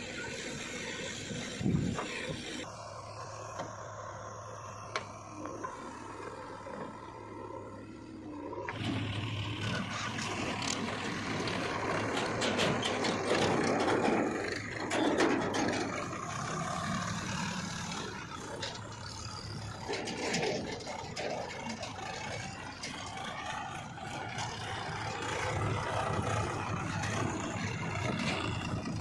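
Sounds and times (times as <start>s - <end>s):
diesel engines running: 0.0s - 29.0s
trolley clicks and rattles: 8.7s - 29.0s.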